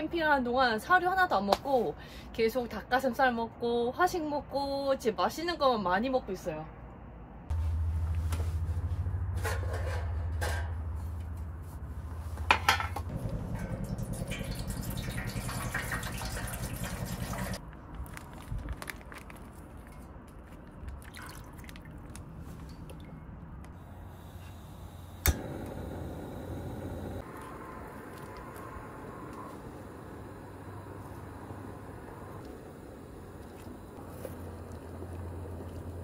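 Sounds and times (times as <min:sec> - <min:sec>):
liquid pouring into metal pot: 0:13.1 - 0:17.6
gas stove igniter click: 0:25.2 - 0:26.2.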